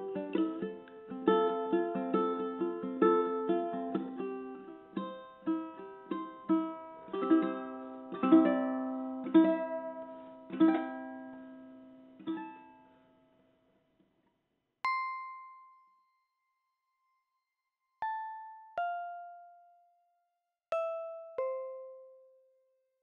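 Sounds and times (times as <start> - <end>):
plucked string melody: 0.0 - 13.3, 18.0 - 19.9, 20.7 - 22.5.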